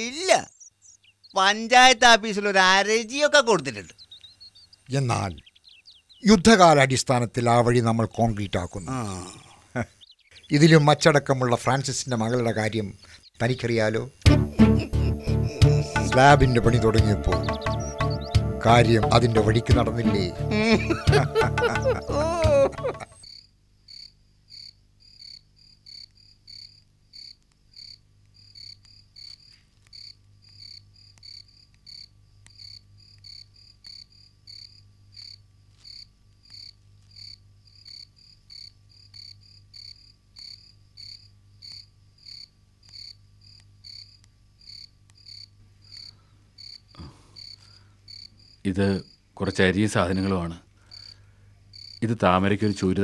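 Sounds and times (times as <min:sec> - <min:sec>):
faint low hum: 0:18.5 - 0:53.0.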